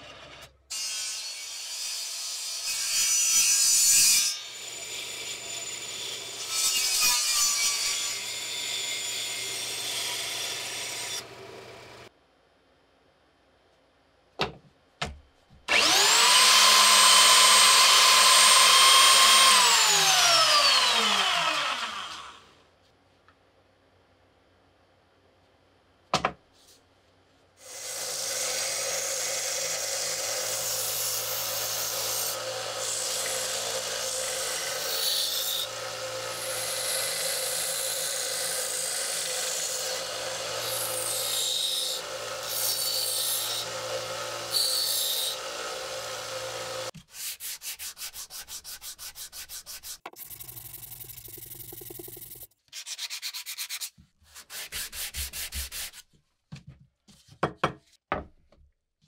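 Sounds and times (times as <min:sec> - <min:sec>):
sander humming: 0:15.7 - 0:22.4
sanding block rubbing wood: 0:47.0 - 0:50.2, 0:52.8 - 0:56.0.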